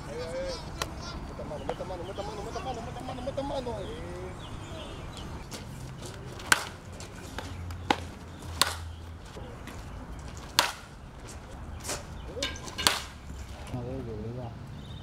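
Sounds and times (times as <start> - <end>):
outdoor background noise: 0.0 - 15.0
baseballs cracking against bats: 0.5 - 3.0, 4.4 - 13.9.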